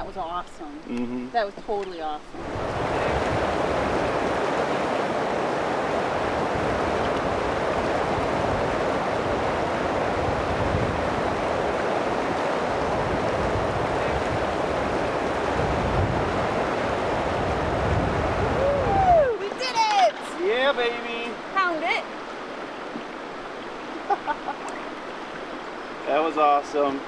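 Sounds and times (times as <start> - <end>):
whitewater rapids rushing: 2.4 - 27.0.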